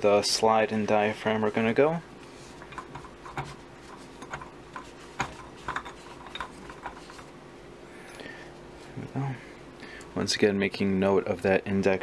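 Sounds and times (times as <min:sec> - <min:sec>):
cloth rubbing metal: 0:00.8 - 0:07.4.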